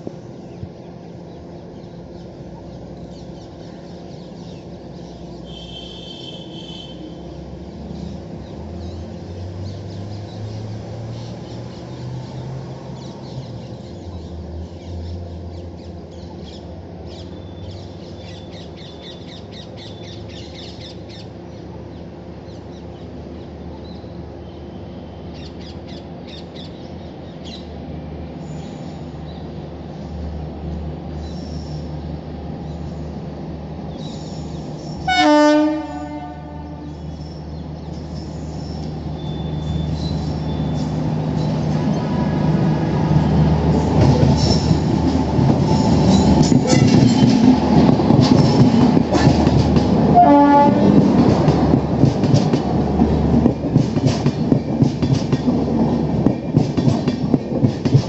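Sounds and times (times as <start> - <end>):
distant train rumble: 0.0 - 58.0
birds chirping: 31.1 - 50.2.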